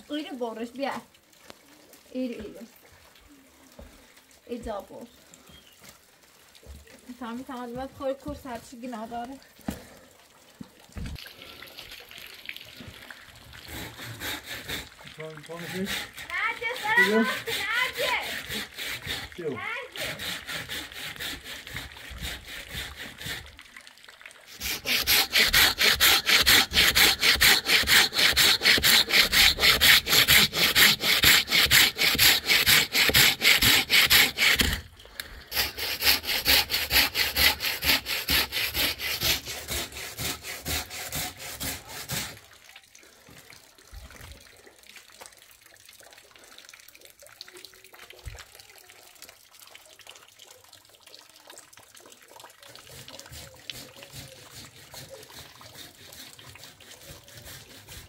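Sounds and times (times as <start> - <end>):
rasping strokes: 13.7 - 23.5, 24.5 - 34.8, 35.5 - 42.4, 52.8 - 58.0.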